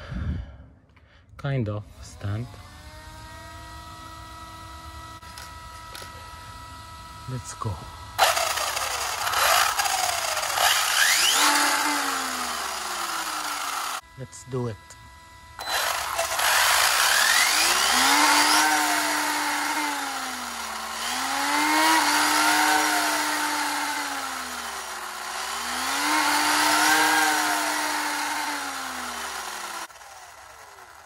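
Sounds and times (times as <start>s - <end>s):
electric motor whining: 1.8s - 31.0s
rush of gear noise: 8.2s - 14.0s, 15.6s - 31.0s.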